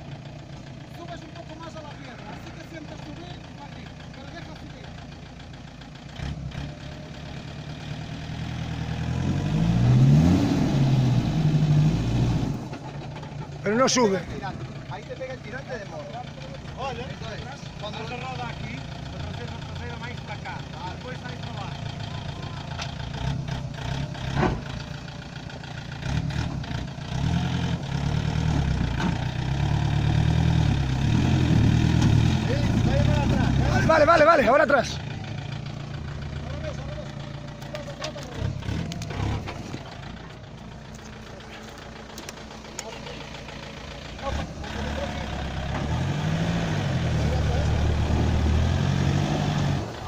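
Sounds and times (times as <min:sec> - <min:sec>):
engine revving under load: 0:06.1 - 0:13.0, 0:21.4 - 0:24.9, 0:25.9 - 0:50.0.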